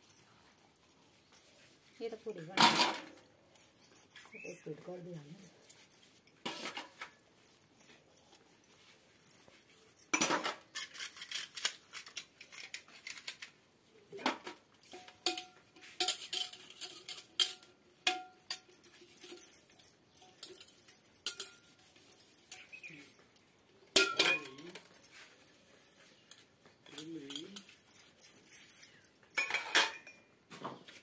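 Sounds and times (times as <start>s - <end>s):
steel utensils and cups clattering: 14.3s - 30.4s.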